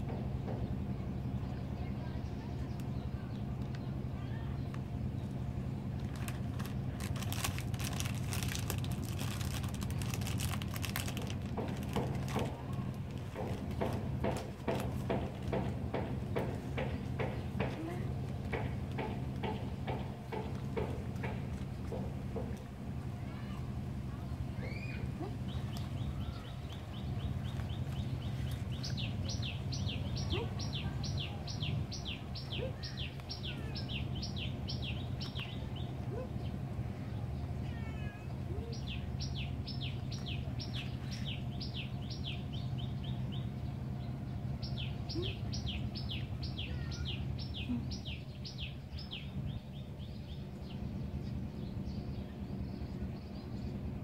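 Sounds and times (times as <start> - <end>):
steady low hum: 0.0 - 54.0
plastic packet crinkling: 6.0 - 13.4.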